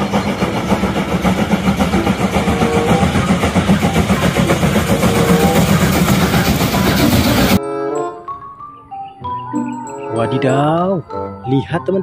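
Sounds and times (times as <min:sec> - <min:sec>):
steam locomotives chuffing: 0:00.0 - 0:07.6.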